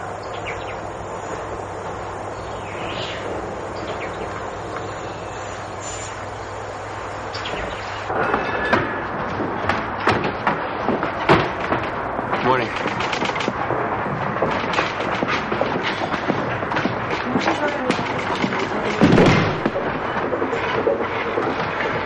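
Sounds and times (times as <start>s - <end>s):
even hiss: 0.0s - 10.0s
room noise: 0.0s - 22.0s.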